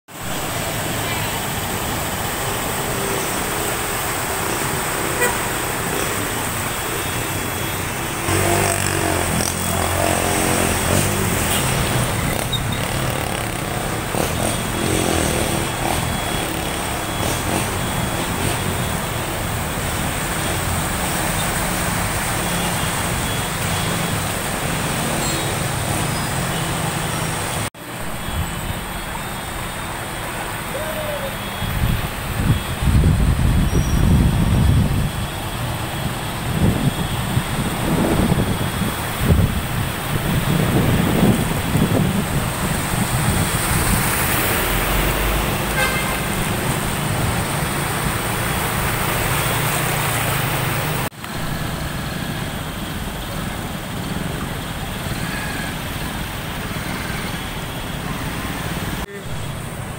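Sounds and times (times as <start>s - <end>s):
motorcycle and car engines: 0.1s - 59.9s
water washing: 0.2s - 14.8s, 34.6s - 59.9s
horn-like tone: 4.4s - 6.2s, 45.7s - 46.3s.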